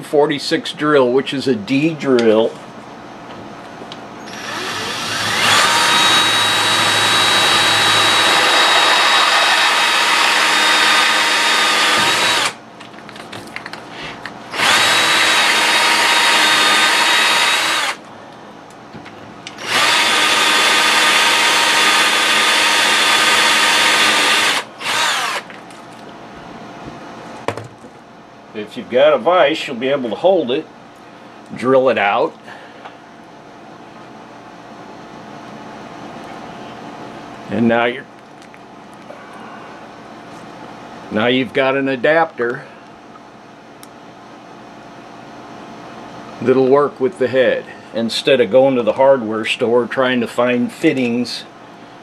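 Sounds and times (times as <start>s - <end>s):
drill boring metal tube: 4.3s - 12.6s, 14.5s - 18.0s, 19.6s - 25.4s.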